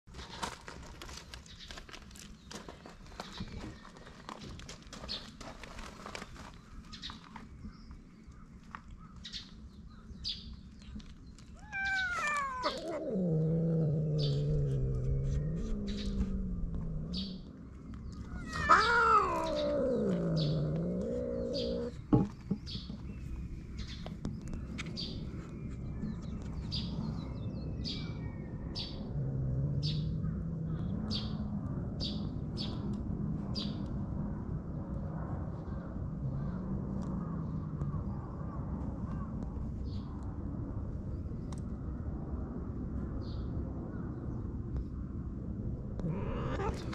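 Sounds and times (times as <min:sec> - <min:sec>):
cat yowling: 0:11.6 - 0:17.2, 0:18.2 - 0:22.0, 0:46.0 - 0:46.9
bird chirping: 0:14.0 - 0:29.1.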